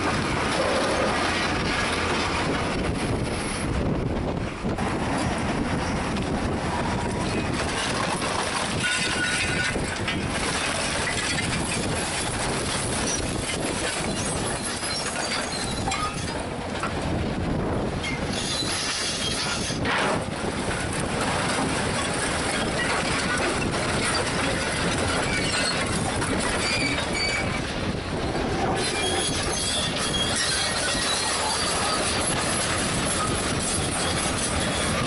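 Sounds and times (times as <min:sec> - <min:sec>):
steel scraping: 0:07.3 - 0:16.4, 0:23.5 - 0:35.0
concrete clattering and grinding: 0:07.9 - 0:11.9
metallic squeals from grapple: 0:08.8 - 0:09.8, 0:10.9 - 0:16.4, 0:18.0 - 0:20.2, 0:25.0 - 0:35.0.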